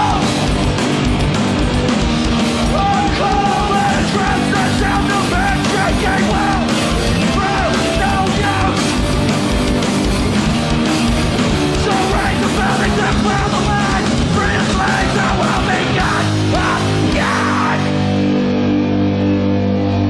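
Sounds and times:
fast drumming: 0.0 - 17.9
distorted guitars and bass: 0.0 - 20.0
person shouting vocals: 11.9 - 17.9.

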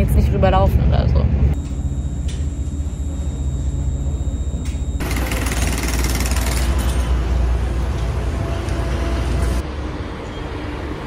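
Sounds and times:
faint high whine: 1.5 - 5.2
rush of moving traffic: 6.6 - 11.0.

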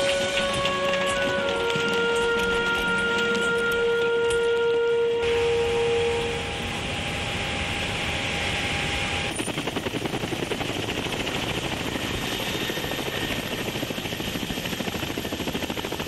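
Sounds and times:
helicopter rotor blades chopping: 0.0 - 5.7, 6.4 - 16.0.

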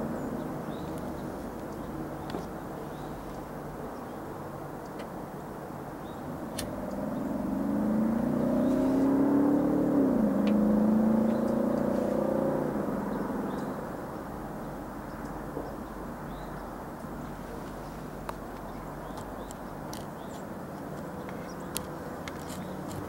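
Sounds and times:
faint chirps and clicks: 0.7 - 4.2, 11.2 - 11.9, 13.5 - 13.8, 15.0 - 23.0
vehicle engine running: 5.8 - 15.6.

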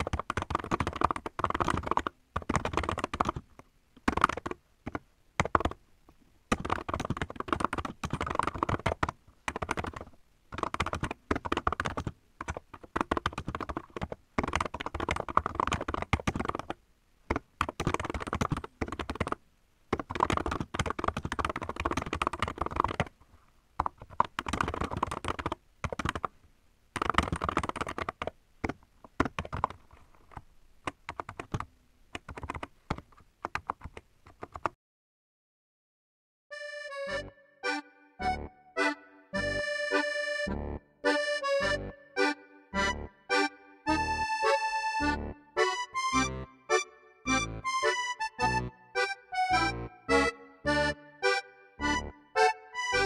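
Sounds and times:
typing on mechanical keyboard: 0.0 - 5.8, 6.5 - 23.1, 23.8 - 26.3, 27.0 - 34.8.

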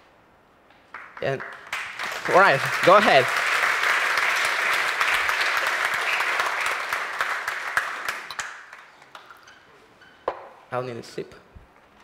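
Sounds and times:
audience applauding: 0.9 - 9.7.

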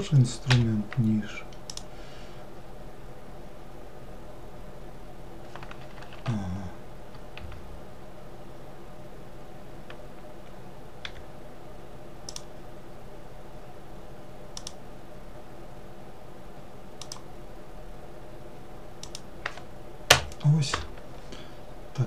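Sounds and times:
low background hum: 0.0 - 22.0
mouse and keyboard clicks: 12.3 - 12.5, 14.6 - 14.8, 17.0 - 17.2.

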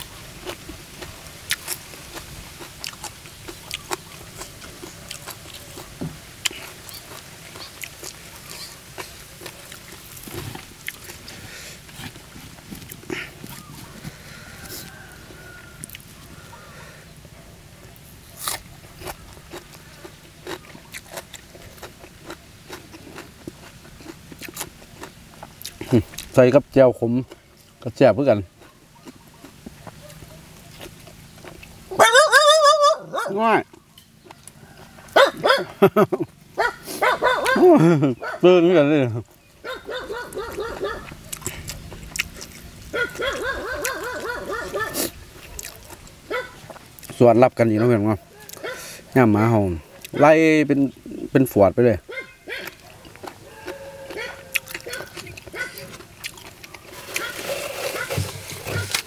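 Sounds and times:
person chewing crunchy food: 0.0 - 16.8, 17.8 - 38.4, 39.2 - 50.2, 52.1 - 59.0
dog yipping: 31.9 - 33.4, 35.2 - 35.8, 36.6 - 38.5, 39.6 - 41.2, 42.9 - 45.1, 45.8 - 46.6, 52.1 - 56.0, 57.2 - 58.2
faint clicks of eating: 40.3 - 44.3, 44.9 - 46.1.

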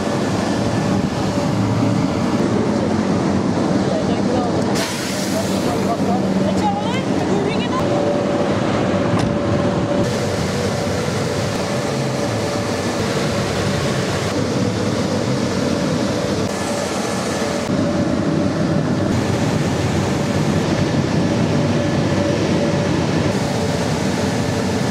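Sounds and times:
car wash motors: 0.0 - 24.9
hiss: 4.7 - 6.0.

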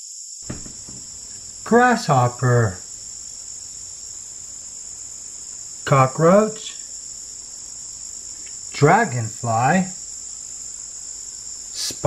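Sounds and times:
insects chirring: 0.0 - 12.0
person speaking a word: 1.7 - 2.8, 8.8 - 9.9.

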